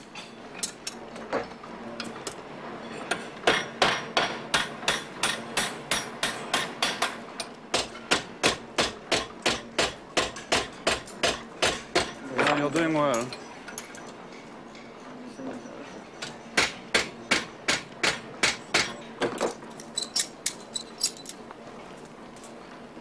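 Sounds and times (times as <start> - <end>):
hammer striking steel pin: 3.4 - 7.2.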